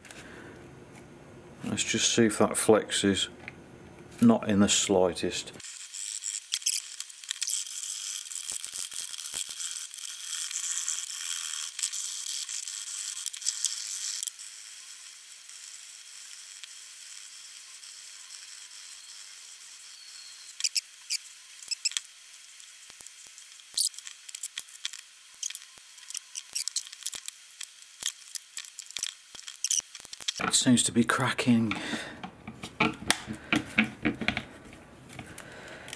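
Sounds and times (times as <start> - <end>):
tools clicking and tapping: 31.7 - 35.4.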